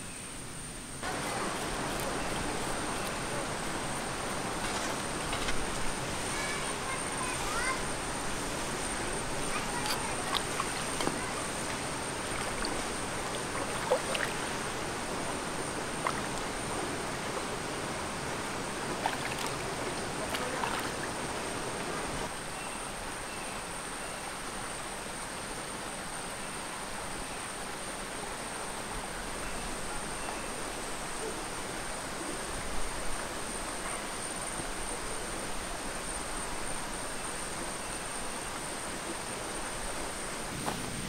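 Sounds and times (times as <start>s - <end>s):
shallow stream flowing: 0.9s - 41.0s
small splashes and knocks: 9.4s - 14.7s, 15.9s - 16.5s, 18.9s - 22.1s.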